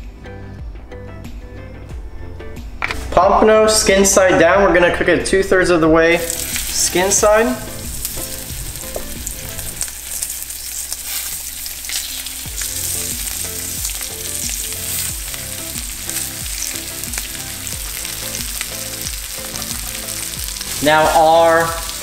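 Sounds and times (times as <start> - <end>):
fish fillets sizzling in oil: 6.2 - 22.0.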